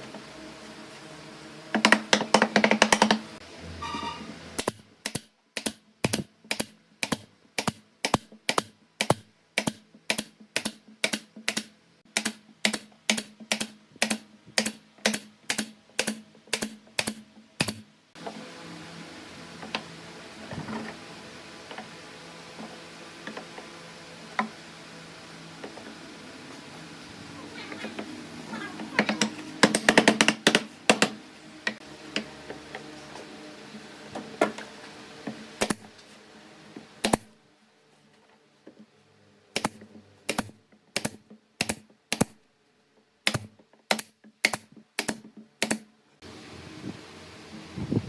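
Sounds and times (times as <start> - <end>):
nail gun firing into wood: 39.6 - 42.4, 43.2 - 45.9.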